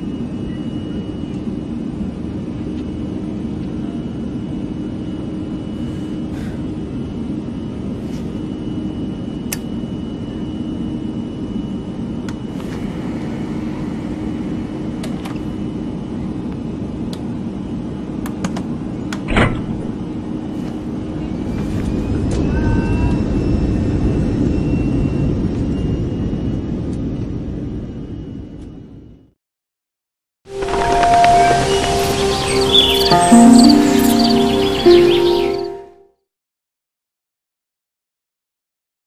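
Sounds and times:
faint high whine: 0.0s - 19.1s, 30.5s - 36.0s
airliner cabin rumble: 0.1s - 28.1s.

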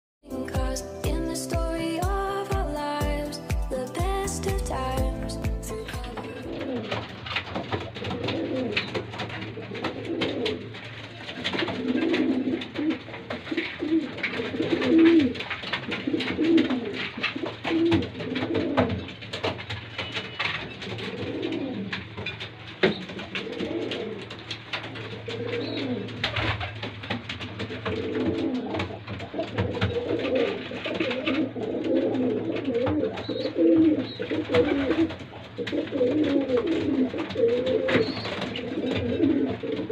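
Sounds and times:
pigeons cooing: 6.4s - 39.9s.

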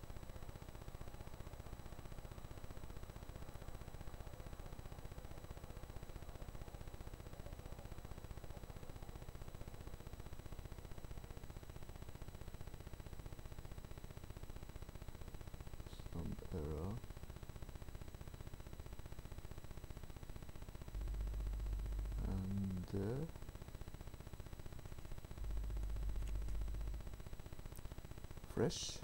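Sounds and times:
low hum and hiss: 0.0s - 29.0s.

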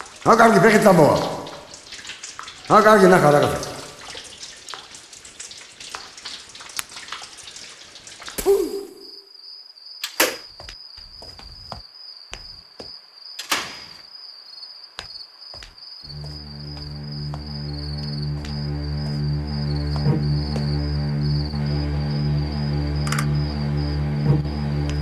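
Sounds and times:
water running and splashing: 0.0s - 9.2s
cricket trilling: 8.2s - 24.8s.

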